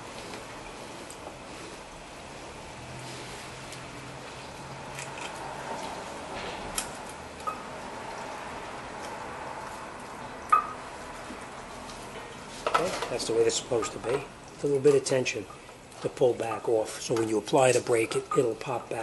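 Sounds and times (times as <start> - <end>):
workshop noise hiss: 10.6 - 19.0.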